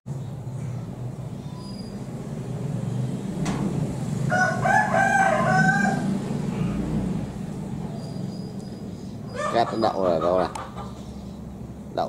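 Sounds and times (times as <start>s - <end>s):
rooster crowing: 4.2s - 6.8s, 9.3s - 9.8s.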